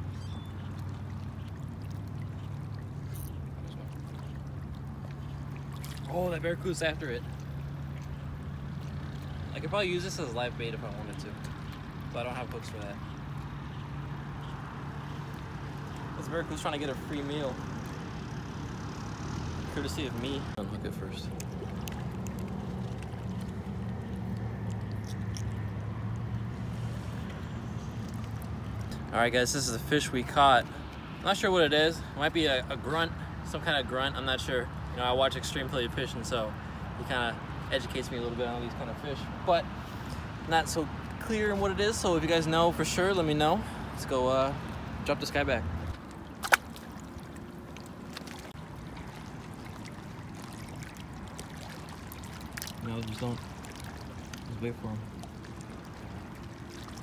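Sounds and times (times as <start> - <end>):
seawater lapping against rocks: 0.0 - 18.0, 19.8 - 57.0
distant motor hum: 0.0 - 31.3
fish splashing into water: 0.1 - 9.5, 21.2 - 29.0, 45.8 - 57.0.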